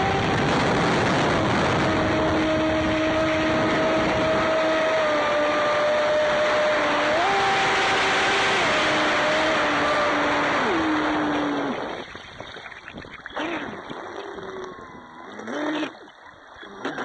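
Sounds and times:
electric motor whining: 0:00.0 - 0:11.9
water rushing: 0:00.0 - 0:17.0.

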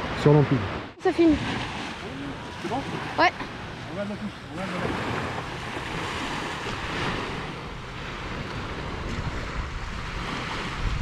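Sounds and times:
waves washing on sandy beach: 0:00.0 - 0:11.0
wind on microphone: 0:04.6 - 0:11.0.

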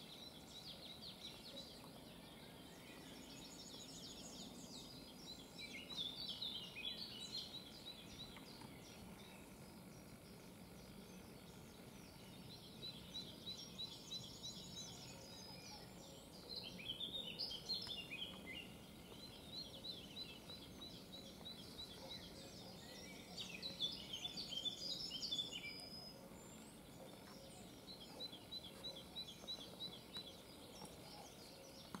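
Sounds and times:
faint background hiss: 0:00.0 - 0:32.0
songbirds singing: 0:00.0 - 0:32.0.

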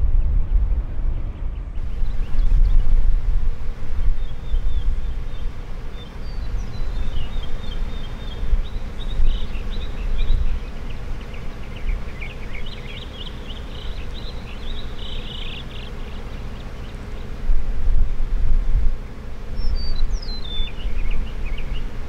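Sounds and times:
wind rumble on microphone: 0:00.0 - 0:12.8, 0:17.2 - 0:22.0
small bird chirping: 0:03.9 - 0:17.4, 0:19.0 - 0:22.0.

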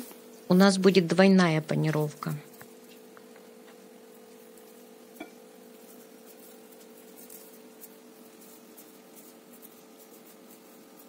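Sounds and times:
faint steady hum: 0:00.0 - 0:11.0
soft ticks of dough handling: 0:02.4 - 0:11.0.

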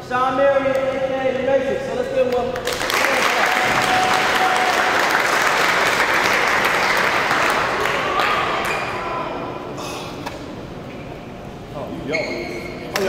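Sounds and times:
people applauding: 0:02.6 - 0:08.8.

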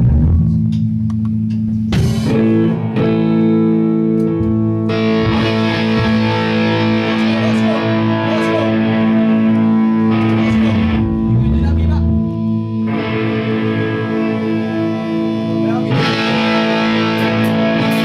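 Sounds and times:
electric guitar chord ringing: 0:00.0 - 0:18.0
rock band playing live: 0:00.0 - 0:18.0.

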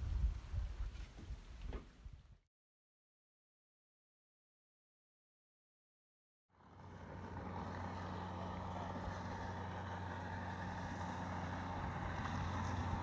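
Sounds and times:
speedboat engine running: 0:06.5 - 0:13.0.

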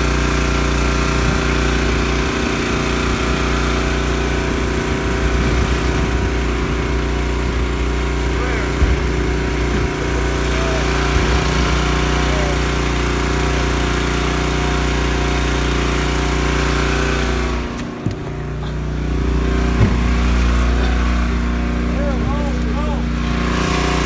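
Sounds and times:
boat motor running: 0:00.0 - 0:24.0
short knocks: 0:19.7 - 0:20.3.

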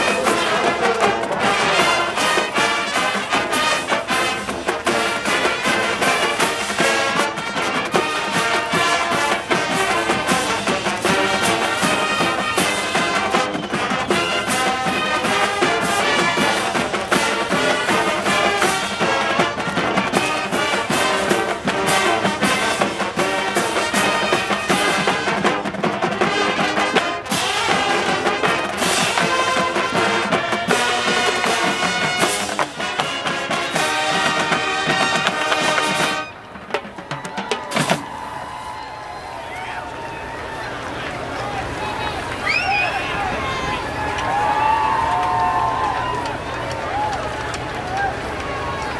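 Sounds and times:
steady drum beat: 0:00.0 - 0:38.4
trumpets and trombones: 0:00.0 - 0:38.6
marching band playing: 0:00.0 - 0:48.9.

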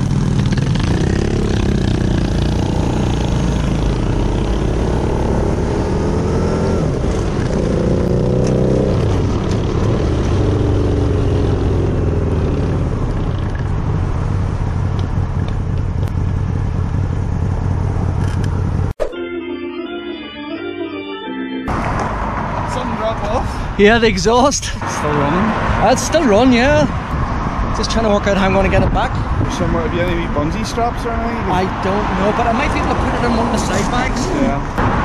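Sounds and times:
motorcycle engine accelerating: 0:00.0 - 0:19.0
wind and road noise: 0:00.0 - 0:19.0, 0:21.7 - 0:35.0.

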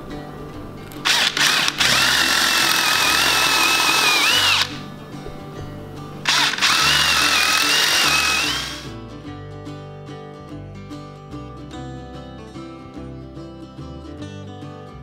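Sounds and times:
power drill boring into wood: 0:01.0 - 0:04.8, 0:06.3 - 0:08.8.

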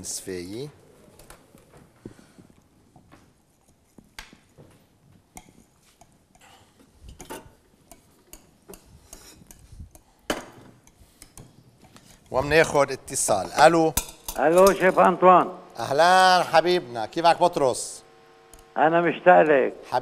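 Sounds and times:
whisk clicking and scraping bowl: 0:05.3 - 0:10.2, 0:10.8 - 0:14.9.

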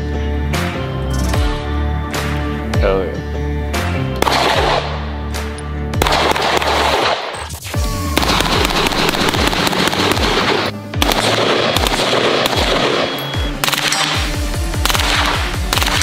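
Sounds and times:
rifle gunfire: 0:04.2 - 0:05.0, 0:06.0 - 0:07.4, 0:08.2 - 0:16.0
music with deep pulsing beat: 0:07.6 - 0:16.0.

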